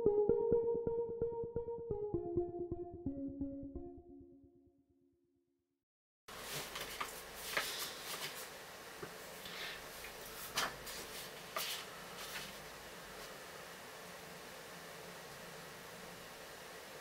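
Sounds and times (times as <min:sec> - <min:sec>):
room tone hiss: 0:06.3 - 0:17.0.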